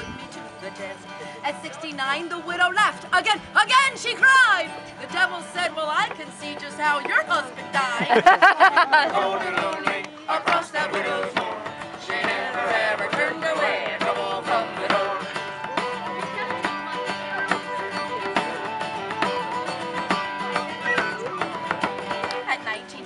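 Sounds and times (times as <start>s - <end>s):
acoustic guitar strumming: 0.0s - 23.0s
fiddle playing melody: 1.2s - 23.0s
frame drum beat: 8.2s - 22.7s
whistle playing melody: 15.3s - 22.0s.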